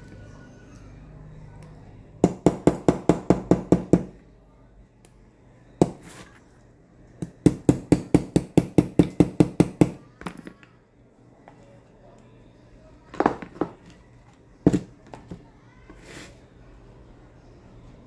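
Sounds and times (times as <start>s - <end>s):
hammer tapping metal: 7.2s - 10.0s.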